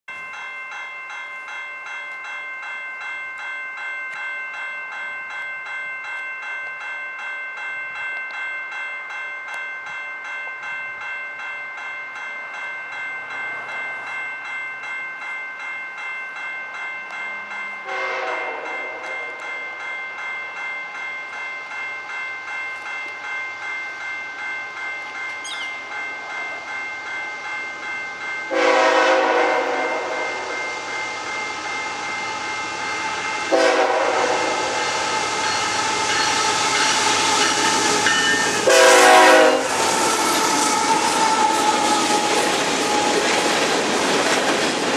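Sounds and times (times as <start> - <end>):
crossing bell ringing: 0.1 - 44.9
train wheels rushing on rails: 17.0 - 44.9
locomotive air horn blasts: 17.9 - 19.0, 28.5 - 30.6, 33.5 - 35.1, 38.6 - 39.8.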